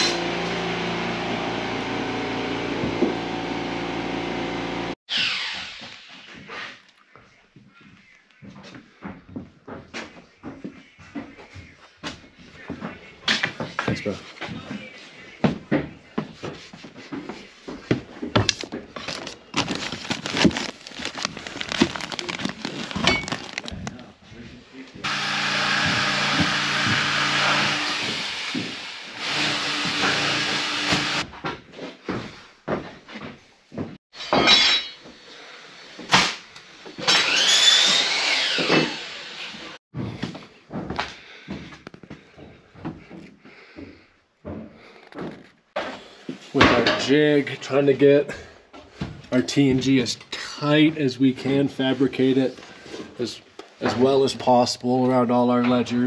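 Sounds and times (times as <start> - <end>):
power tool whining: 0.0 - 6.0, 25.0 - 31.3, 37.0 - 39.8
rustling: 18.6 - 24.7.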